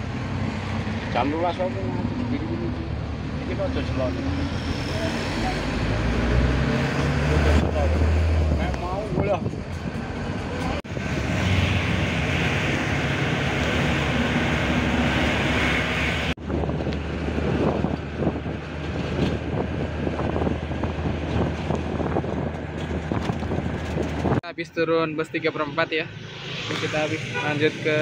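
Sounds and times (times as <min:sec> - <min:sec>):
bus engine drone: 0:00.0 - 0:28.0
road noise: 0:00.0 - 0:28.0
wind rushing through open door: 0:04.4 - 0:24.4.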